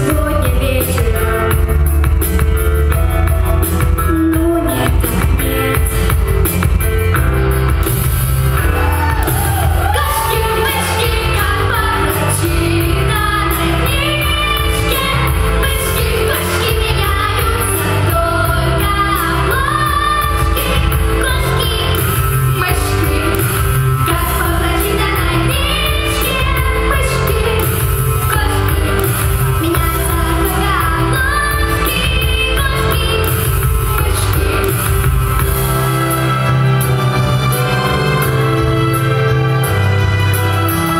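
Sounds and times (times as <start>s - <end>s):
children singing pop duet: 9.4s - 34.7s.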